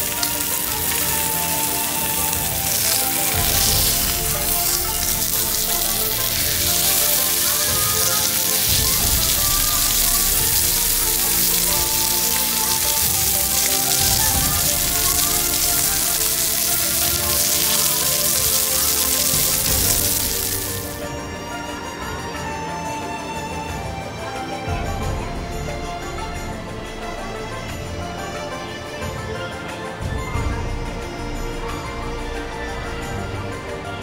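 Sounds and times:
steak sizzling in a pan: 0:00.0 - 0:21.0
background music: 0:00.0 - 0:34.0.

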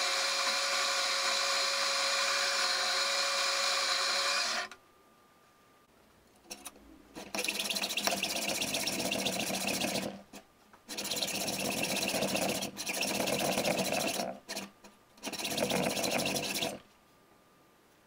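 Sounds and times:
power tool running: 0:00.0 - 0:04.8, 0:10.9 - 0:16.8.

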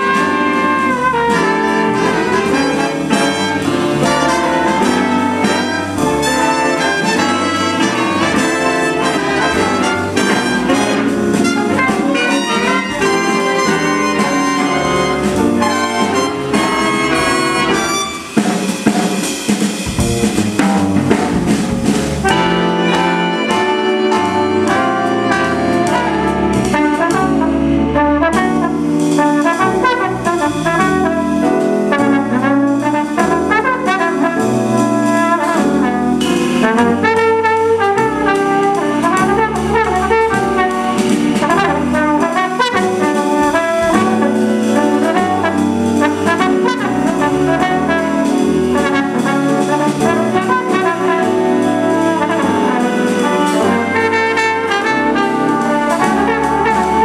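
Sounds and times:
drums and cymbals: 0:00.0 - 0:57.0
jazz big band playing: 0:00.0 - 0:57.0
trombone lead: 0:00.0 - 0:57.0.

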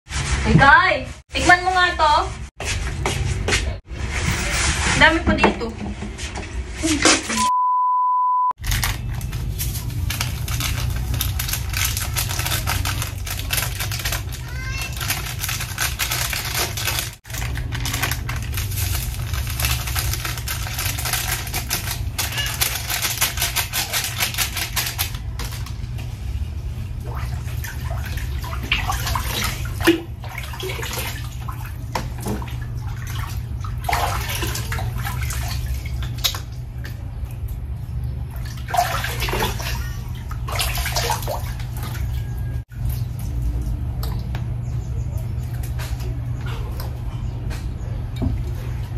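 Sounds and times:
dense fast crackle: 0:08.6 - 0:25.7.

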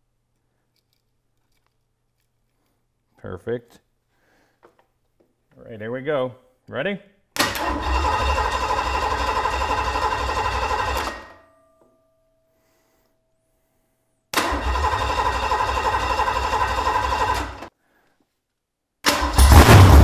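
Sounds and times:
engine starter cranking: 0:07.4 - 0:11.3, 0:14.4 - 0:17.7, 0:19.0 - 0:20.0.

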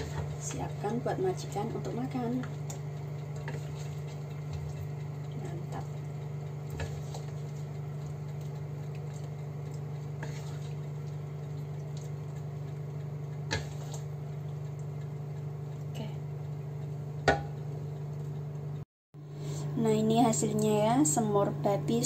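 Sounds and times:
steady low hum: 0:00.0 - 0:22.0
soft wet squishes: 0:02.4 - 0:15.9
metal spatula scraping a wok: 0:10.2 - 0:10.8.

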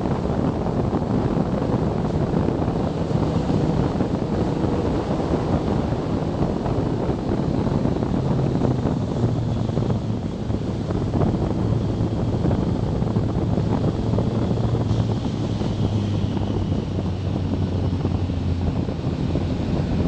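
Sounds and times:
motorcycle engine hum: 0:00.0 - 0:20.0
wind buffeting microphone: 0:00.0 - 0:20.0.

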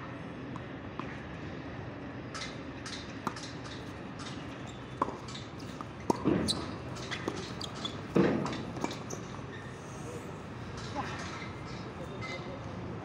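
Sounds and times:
tennis balls struck by rackets: 0:02.3 - 0:09.8.

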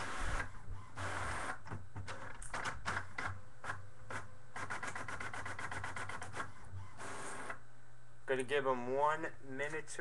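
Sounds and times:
keyboard typing: 0:04.1 - 0:06.5.

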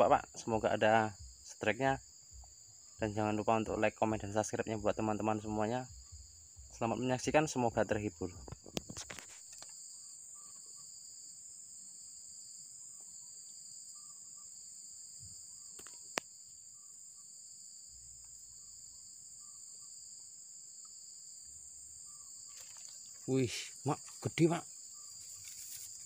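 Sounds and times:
high-pitched insect chorus: 0:00.0 - 0:26.0.

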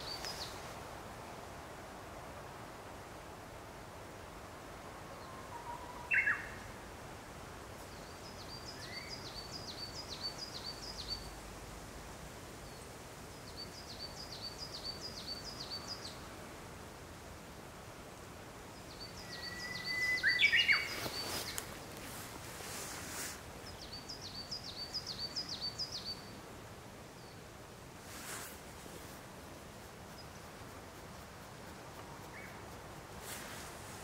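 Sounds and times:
songbird singing: 0:00.0 - 0:00.7, 0:05.1 - 0:06.8, 0:07.8 - 0:11.4, 0:12.6 - 0:16.3, 0:18.7 - 0:26.5, 0:27.1 - 0:27.6, 0:29.7 - 0:34.0
short whistled bird calls: 0:19.2 - 0:21.6
rustling: 0:20.7 - 0:23.6, 0:28.0 - 0:34.0.

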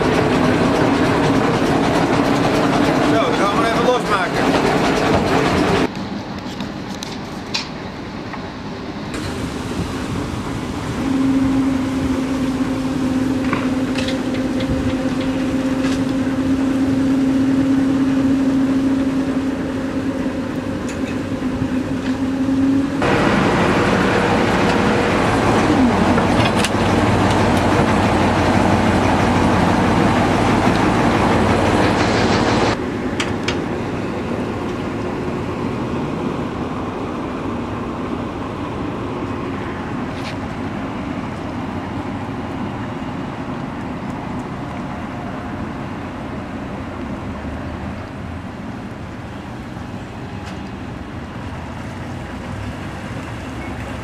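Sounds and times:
boat engine running: 0:00.0 - 0:05.9, 0:09.2 - 0:46.9.

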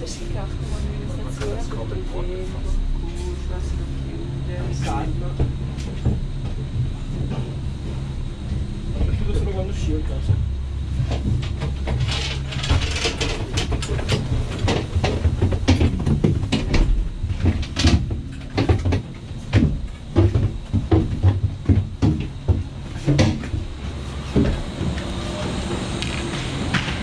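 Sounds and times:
gondola cabin rumbling: 0:00.0 - 0:27.0
cabin rattling and knocking: 0:10.2 - 0:23.8.

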